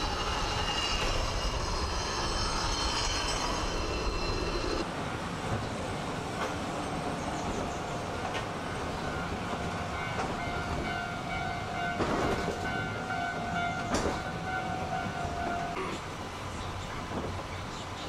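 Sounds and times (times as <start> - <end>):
high ringing tone: 0.0 - 4.8
cable car rumbling on rails: 0.0 - 18.0.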